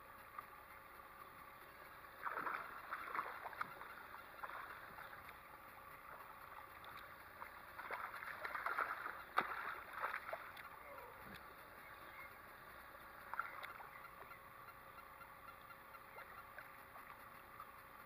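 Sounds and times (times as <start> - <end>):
fish splashing in water: 2.2 - 5.3, 6.0 - 10.8.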